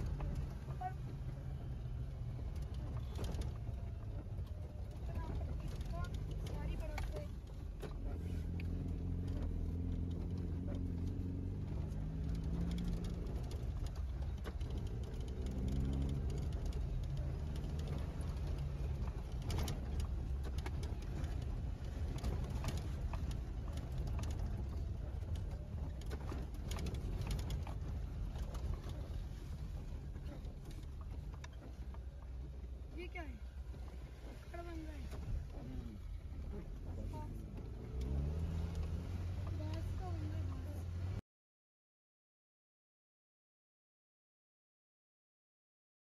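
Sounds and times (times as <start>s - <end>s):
car engine droning: 0.0s - 41.2s
knocks and rattles from rough road: 0.0s - 41.2s.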